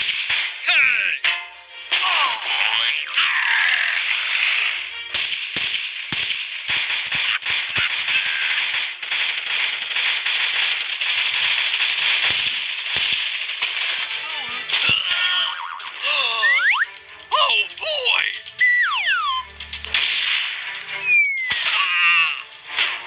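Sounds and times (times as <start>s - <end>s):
background music: 0.0s - 23.0s
gunfire bangs: 4.3s - 15.1s, 19.6s - 20.9s.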